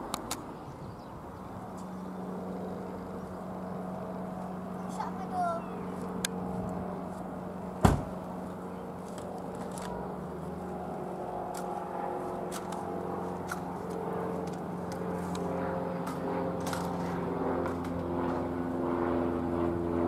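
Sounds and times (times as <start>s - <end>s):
propeller plane engine droning: 0.0s - 20.0s
sharp knock: 7.8s - 8.1s.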